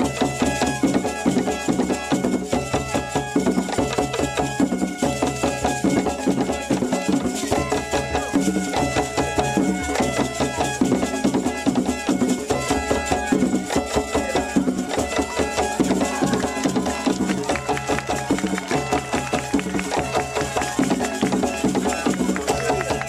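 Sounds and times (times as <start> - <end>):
fast dense drumming: 0.0 - 23.0
pitched instruments: 0.0 - 23.0
voices singing: 14.0 - 23.0.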